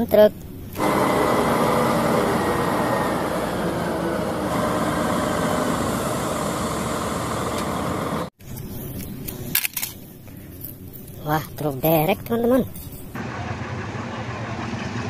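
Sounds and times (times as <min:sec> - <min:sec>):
diesel truck engine running: 0:00.6 - 0:08.4, 0:11.9 - 0:15.0.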